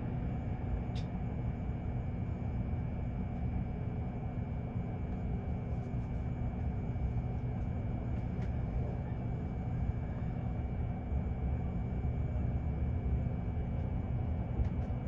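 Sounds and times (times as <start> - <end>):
faint constant hum: 0.0 - 15.0
faint click: 0.9 - 1.1.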